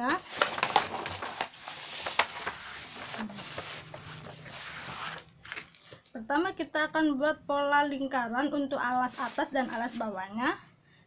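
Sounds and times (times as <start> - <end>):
paper rustling and crackling: 0.0 - 6.1.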